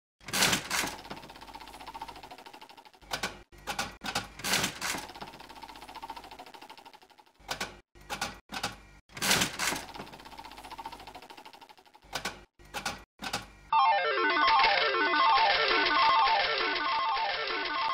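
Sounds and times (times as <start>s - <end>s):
slot machine reel clatters: 0.2s - 3.0s, 3.8s - 7.3s, 9.2s - 12.0s, 14.5s - 17.9s
slot machine reels spinning: 0.3s - 3.1s, 4.4s - 7.3s, 9.3s - 12.0s, 13.7s - 17.9s.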